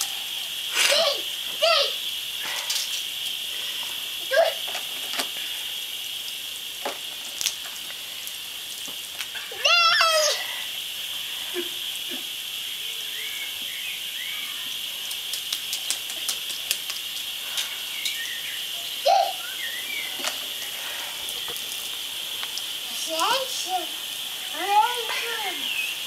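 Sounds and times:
sprinkler spraying water hiss: 0.0 - 26.0
toddler shouting: 0.8 - 2.0, 4.3 - 4.6, 9.5 - 10.6, 19.0 - 19.4
toddler squealing: 9.5 - 10.5, 14.2 - 14.8, 19.0 - 19.6.

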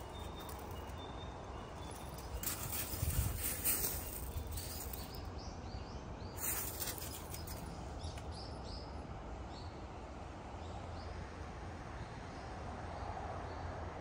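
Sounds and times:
small birds chirping: 0.0 - 9.8.

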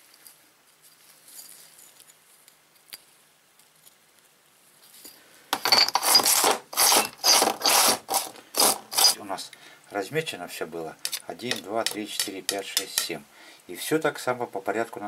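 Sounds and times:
hand tool scraping brick: 5.6 - 9.2.

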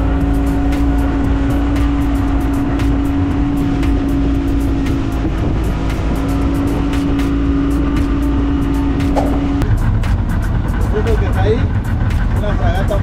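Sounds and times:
boat motor running: 0.0 - 13.0
short knocks or slaps: 9.0 - 9.7.

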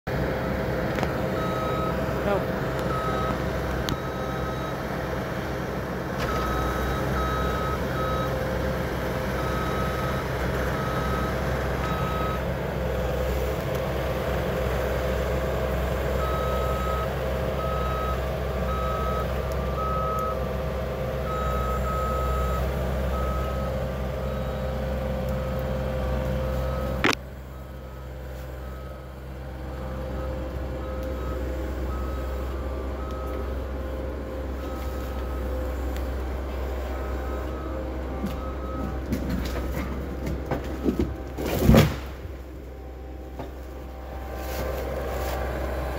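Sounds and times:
diesel engine running: 0.1 - 45.9
backup alarm beeping: 0.4 - 4.9.

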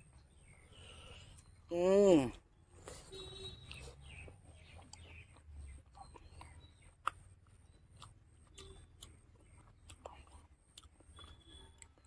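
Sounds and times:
man chewing food: 2.6 - 12.0
mouth clicks and smacks: 3.6 - 12.0.

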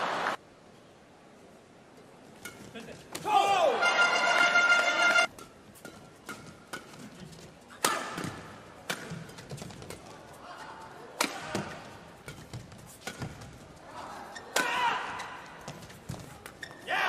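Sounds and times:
rackets striking shuttlecock: 2.4 - 10.1, 11.2 - 13.6, 14.4 - 16.6.

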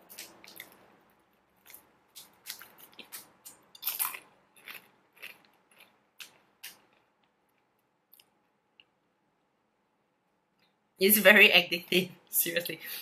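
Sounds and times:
crackers crunching while chewed: 0.1 - 0.9, 1.5 - 8.9.

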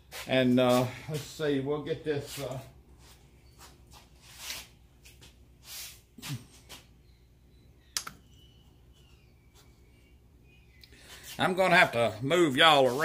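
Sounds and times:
sharp click: 8.0 - 8.2.

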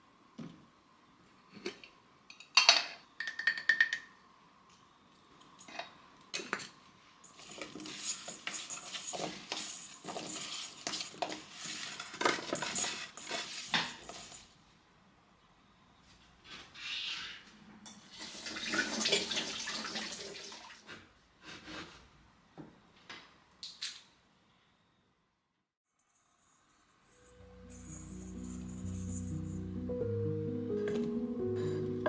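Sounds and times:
vegetables clattering in metal bowl: 7.2 - 14.5.

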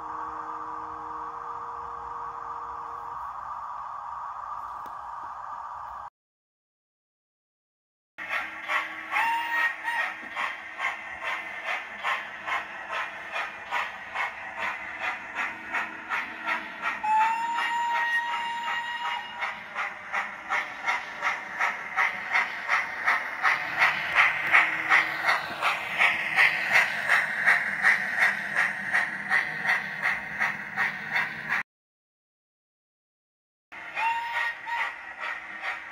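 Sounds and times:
steam locomotive exhaust chuffs: 8.2 - 31.6, 33.8 - 35.9
steam whistle blast: 9.2 - 10.0, 17.0 - 19.4, 33.9 - 35.0.

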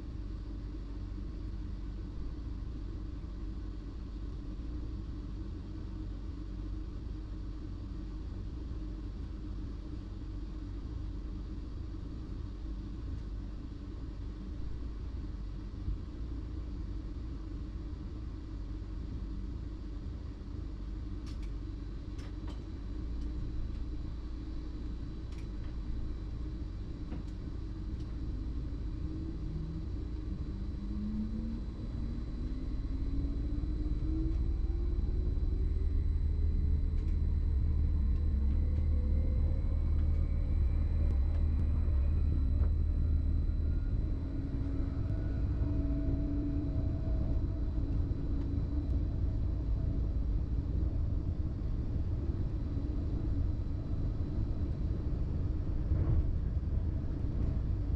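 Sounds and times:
train low rumble: 0.0 - 57.9
traction drive whine rising: 27.0 - 57.9.

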